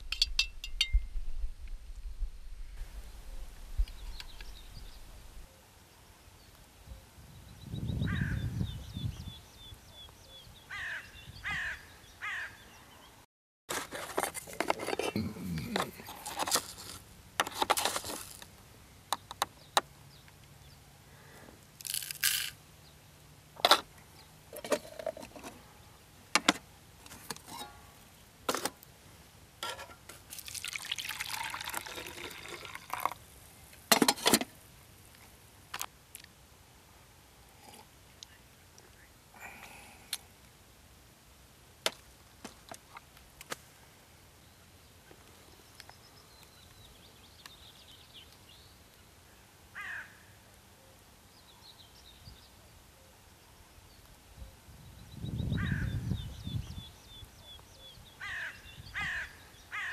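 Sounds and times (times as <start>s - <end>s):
birds calling: 6.9s - 13.2s, 55.1s - 59.9s
liquid pouring: 30.3s - 33.2s.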